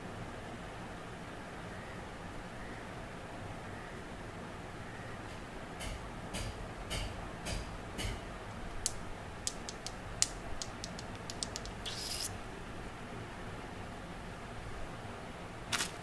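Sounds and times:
lollipops tapping and clicking: 8.0 - 12.3.

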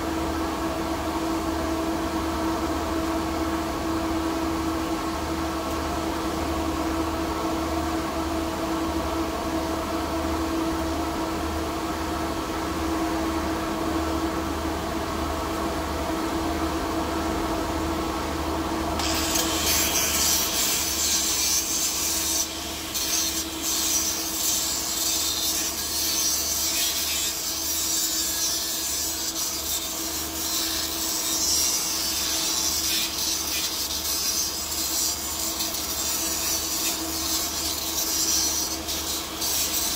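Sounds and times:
fan hum: 0.0 - 39.9
angle grinder grinding metal: 19.0 - 39.9.

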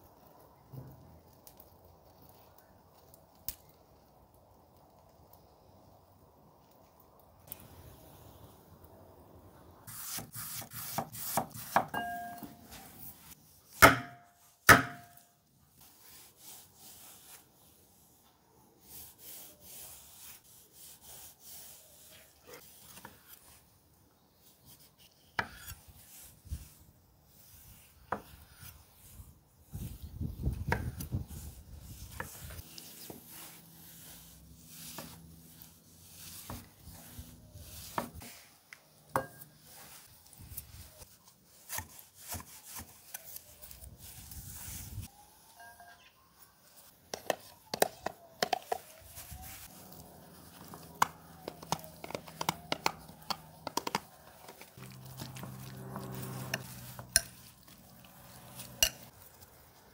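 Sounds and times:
knife chopping on wooden board: 9.9 - 12.0, 13.8 - 15.2
short ringing tone: 12.0 - 12.7
soft cutting sounds: 49.3 - 59.9.

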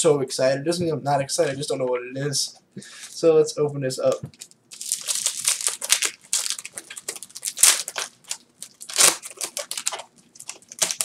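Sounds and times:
foil wrapper crinkling and tearing: 4.4 - 11.0.

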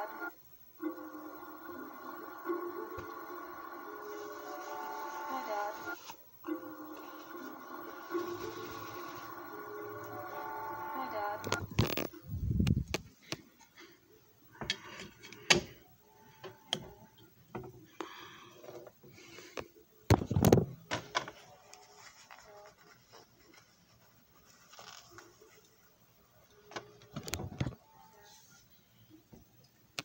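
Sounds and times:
phone handling clicks and rustling: 11.4 - 12.2.

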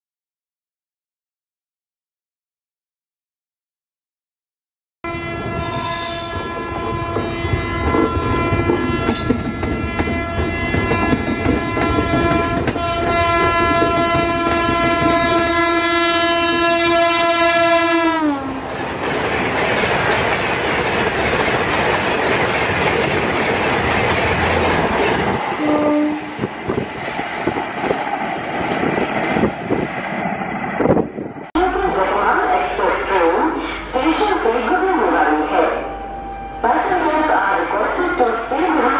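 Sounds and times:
locomotive horn: 5.0 - 18.6, 25.6 - 26.5
train coaches rushing by: 5.3 - 16.8, 18.4 - 38.9.

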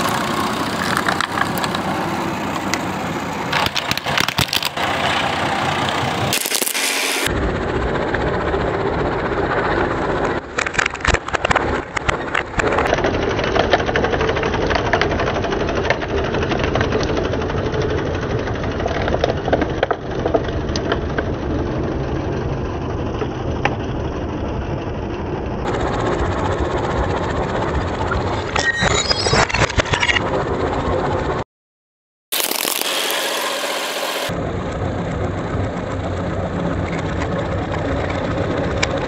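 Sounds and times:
tractor engine running: 0.0 - 28.7, 32.3 - 39.0
plastic and china crushing cracks: 3.5 - 4.8, 6.4 - 7.3, 32.4 - 33.6.

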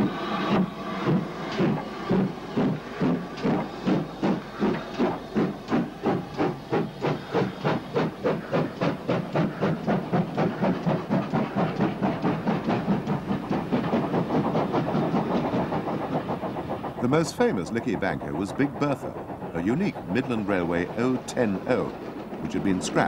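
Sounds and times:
steam engine exhaust beats: 0.0 - 23.0.

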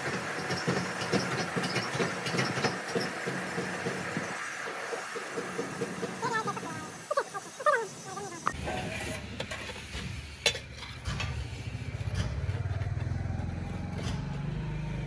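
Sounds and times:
small engine idling: 11.2 - 15.0.

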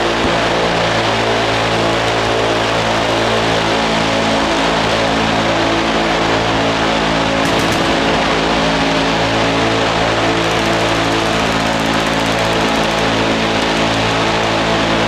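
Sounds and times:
minigun firing: 7.4 - 13.9.

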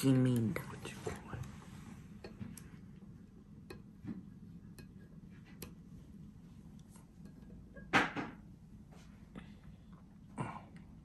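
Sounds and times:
chopsticks clicking on plate: 3.6 - 3.9, 4.7 - 5.0.

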